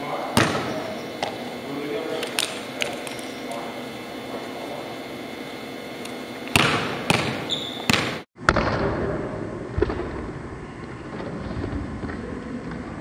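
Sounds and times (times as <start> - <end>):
large hall noise: 0.0 - 13.0
basketball bouncing on gym floor: 0.4 - 1.4, 6.5 - 8.9.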